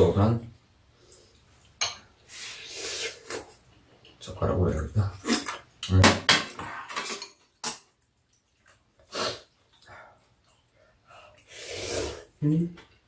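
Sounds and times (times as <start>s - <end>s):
noodles being slurped: 2.2s - 3.6s, 11.4s - 12.4s
chopsticks and spoons clinking bowls: 6.4s - 7.9s.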